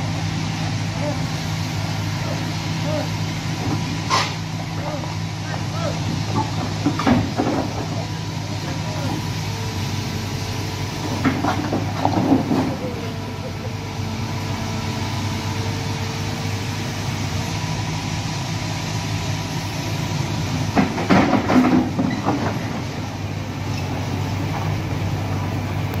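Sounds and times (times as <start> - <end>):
diesel engine running: 0.0 - 26.0
metal tracks clanking and squealing: 3.7 - 4.4, 20.8 - 22.8.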